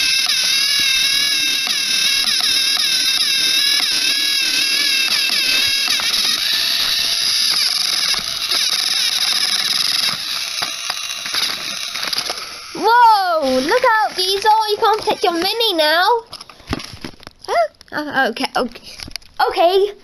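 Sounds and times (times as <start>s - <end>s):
toy train motors whining: 0.0s - 16.9s.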